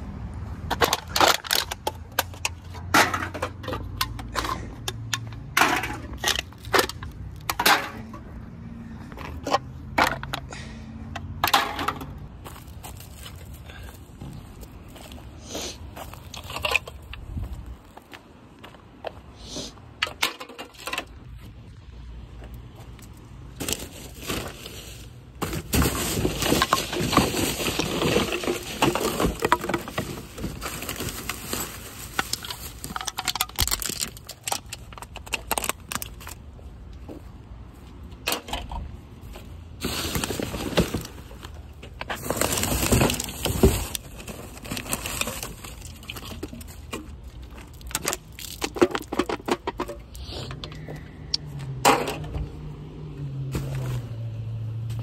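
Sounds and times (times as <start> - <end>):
plastic bags rustling: 23.6 - 36.4, 39.8 - 49.4
aluminum cans clinking: 25.4 - 35.8.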